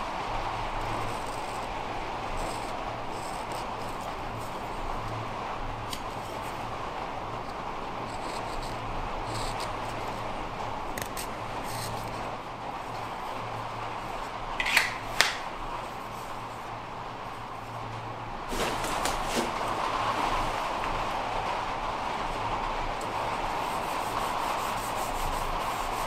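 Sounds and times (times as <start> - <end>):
rushing background noise: 0.0 - 26.0
knife carving wood: 2.3 - 4.6, 7.5 - 10.3, 11.0 - 12.2, 14.6 - 15.5.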